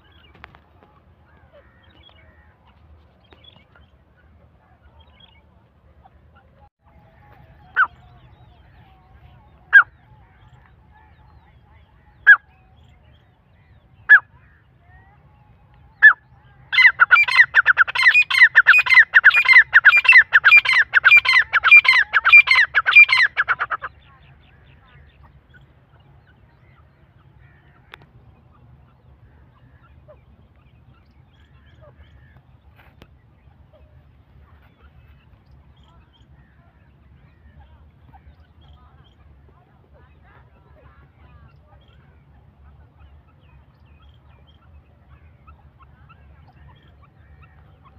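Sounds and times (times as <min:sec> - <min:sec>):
partridges calling: 0:15.6 - 0:47.9.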